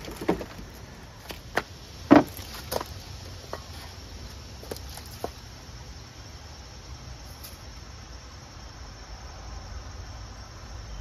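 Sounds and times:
lawn mower knocks and clunks: 0.0s - 2.9s.

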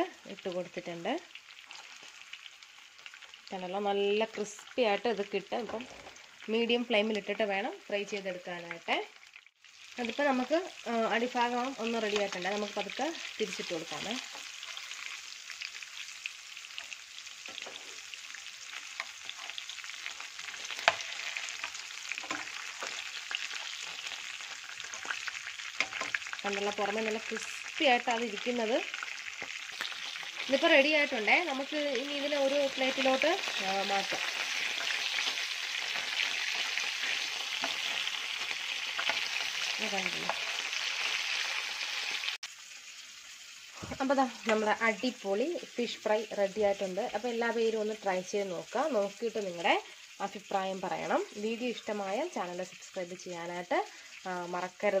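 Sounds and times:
fish sizzling in oil: 0.0s - 55.0s
metal spatula turning fish: 16.6s - 41.1s.

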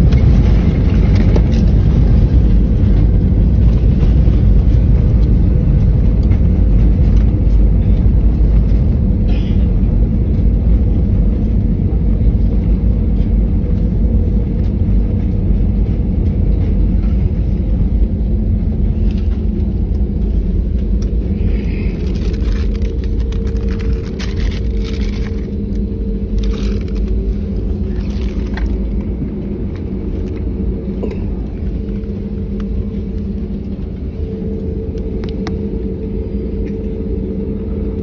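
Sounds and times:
rumble of jet engines and wheels: 0.0s - 38.0s
steady cabin hum: 0.0s - 38.0s.

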